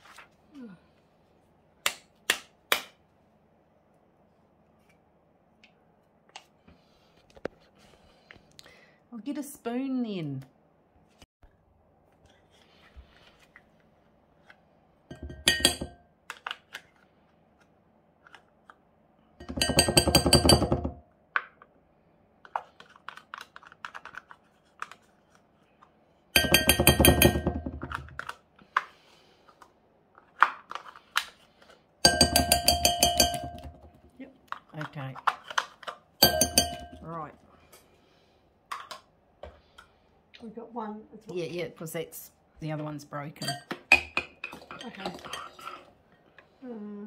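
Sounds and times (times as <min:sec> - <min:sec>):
metal spoon clinking on glass bowl: 0:15.1 - 0:16.0, 0:26.4 - 0:27.6, 0:32.0 - 0:33.8, 0:36.2 - 0:37.0, 0:43.4 - 0:45.6.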